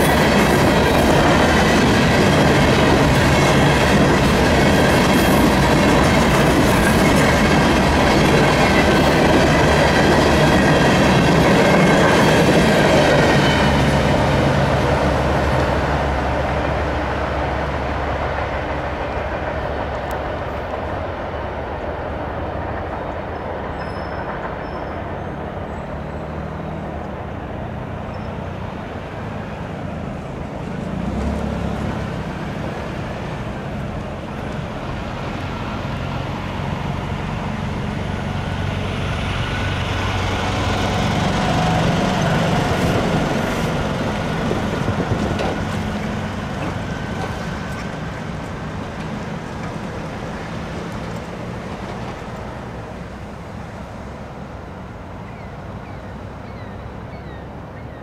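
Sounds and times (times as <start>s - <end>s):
train wheels rumbling on rails: 0.0s - 58.0s
faint thin squeal: 23.7s - 26.8s.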